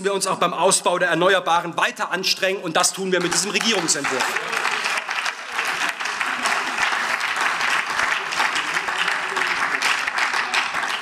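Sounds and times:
crowd applauding: 3.2s - 11.0s.

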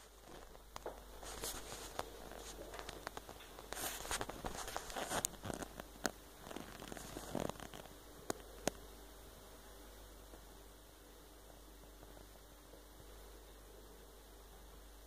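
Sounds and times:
faint rustling: 0.0s - 8.8s.

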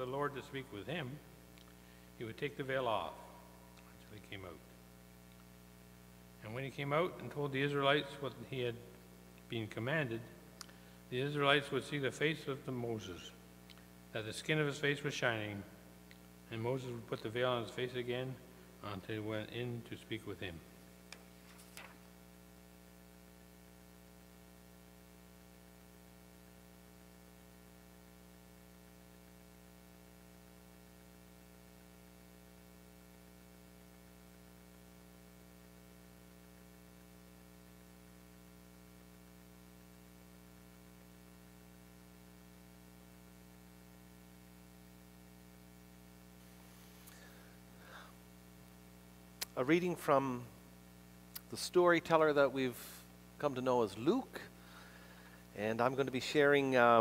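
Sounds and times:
faint hiss: 0.0s - 29.9s, 30.6s - 57.0s
electrical mains hum: 0.0s - 57.0s.

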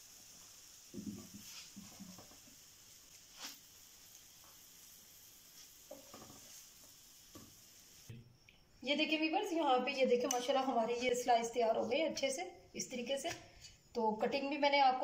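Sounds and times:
food sizzling in pan: 0.0s - 8.4s.

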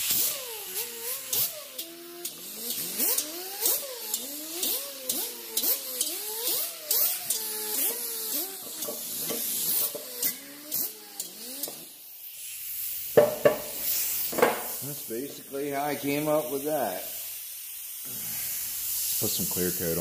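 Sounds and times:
power tool whine: 0.0s - 12.0s
abrasive disc scraping hiss: 12.4s - 17.4s.

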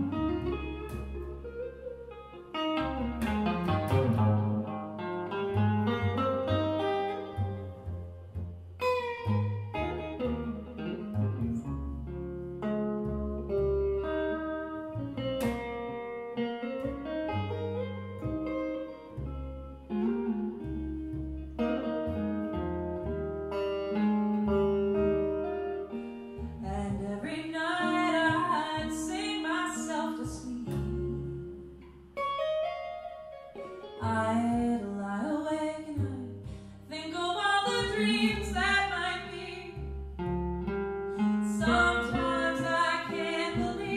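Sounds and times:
electric guitar: 0.0s - 43.9s
plucked upright double bass: 0.0s - 43.9s
woman singing: 26.6s - 31.3s, 34.0s - 39.9s, 41.4s - 43.9s.

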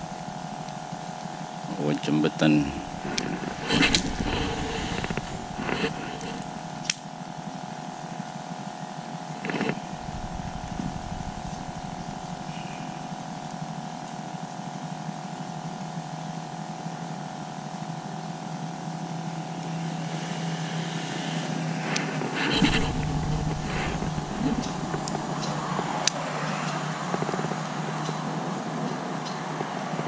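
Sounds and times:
mechanical hum: 0.0s - 30.0s
low rumble: 2.3s - 6.6s, 9.7s - 13.2s, 19.7s - 26.0s.

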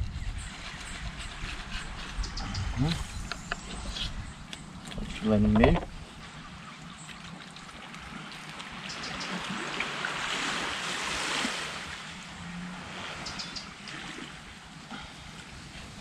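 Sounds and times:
sea waves washing onto beach: 7.2s - 16.0s.

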